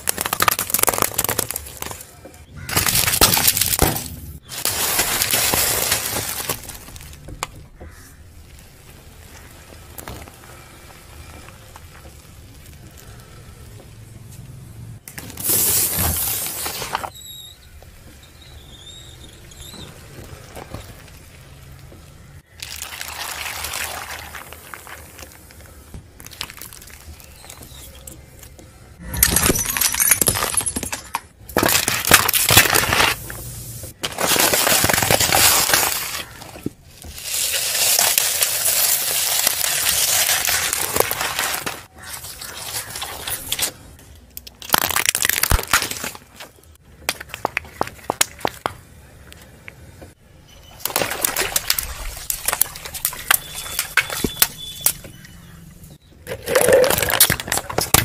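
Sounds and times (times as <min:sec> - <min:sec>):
cardboard tubes flattened: 0:00.0 - 0:13.2, 0:15.0 - 0:17.2, 0:29.1 - 0:48.7, 0:50.6 - 0:55.2, 0:56.2 - 0:58.0
car tyre crushing objects: 0:00.0 - 0:13.7, 0:29.2 - 0:49.0, 0:50.7 - 0:58.0.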